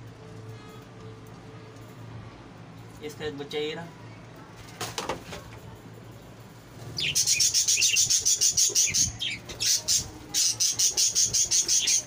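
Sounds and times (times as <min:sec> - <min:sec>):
budgerigar chicks chirping: 0:07.0 - 0:12.0.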